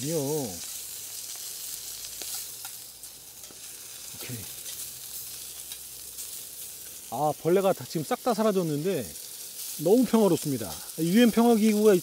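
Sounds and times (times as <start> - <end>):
meat sizzling in oil: 0.0 - 12.0.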